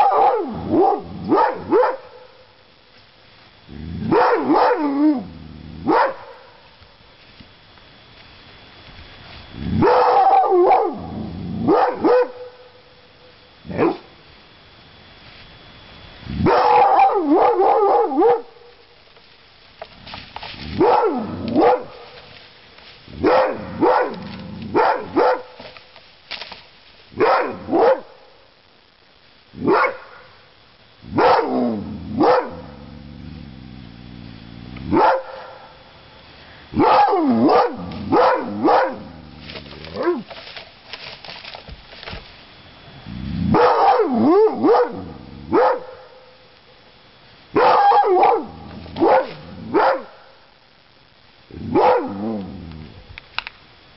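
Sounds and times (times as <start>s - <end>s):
dog barking: 0.0s - 2.3s, 4.1s - 4.9s, 5.8s - 6.6s, 9.8s - 12.6s, 16.4s - 18.6s, 20.8s - 22.0s, 23.2s - 25.6s, 27.2s - 28.2s, 29.6s - 30.2s, 31.2s - 31.6s, 32.2s - 32.8s, 34.9s - 35.7s, 36.8s - 39.2s, 43.5s - 46.2s, 47.6s - 50.3s, 51.7s - 52.2s.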